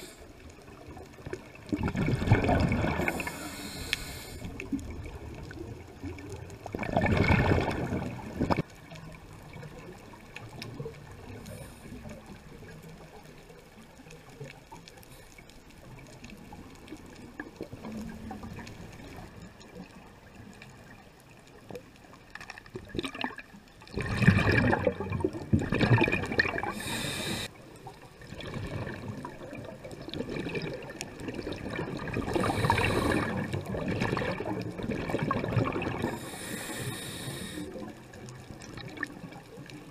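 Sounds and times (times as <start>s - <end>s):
underwater breath bubbles: 0.0s - 5.2s, 6.1s - 8.7s, 22.9s - 39.4s
underwater wash: 0.0s - 39.9s.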